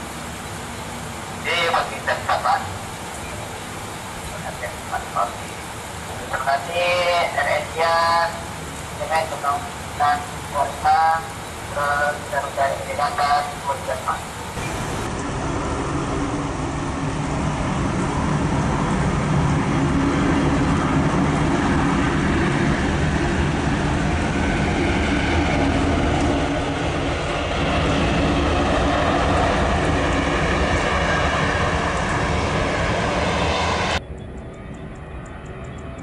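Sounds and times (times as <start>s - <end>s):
hiss of spray and rain: 0.0s - 24.4s
jet engines running: 0.0s - 36.0s.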